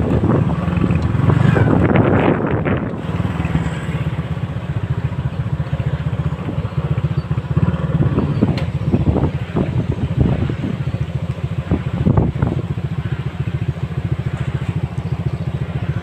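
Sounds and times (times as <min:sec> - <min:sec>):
small motorcycle engine running: 0:00.0 - 0:16.0
wind buffeting microphone: 0:00.0 - 0:16.0.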